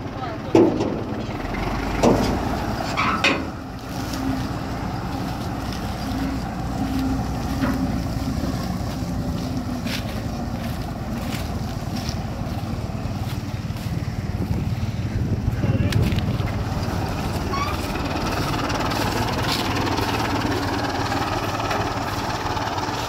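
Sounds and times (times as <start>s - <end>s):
tractor diesel engine running: 0.0s - 23.0s
wind rumbling on microphone: 3.6s - 20.7s
forage harvester chopping maize: 15.9s - 23.0s.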